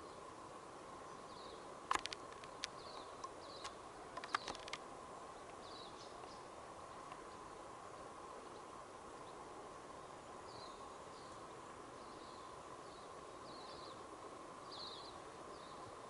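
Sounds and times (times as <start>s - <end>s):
faint steady hum: 0.0s - 16.0s
sharp clicks or snaps: 1.9s - 4.8s.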